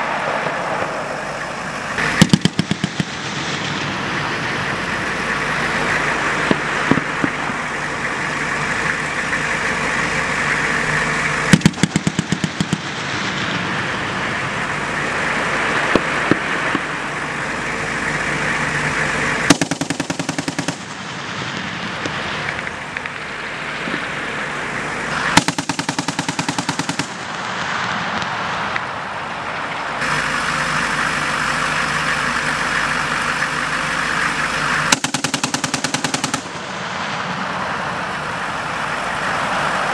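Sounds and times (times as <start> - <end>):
military vehicle engines running: 0.0 - 39.9
machine guns firing bursts: 2.0 - 3.2, 11.5 - 13.0, 19.5 - 21.0, 25.2 - 27.4, 34.9 - 36.7.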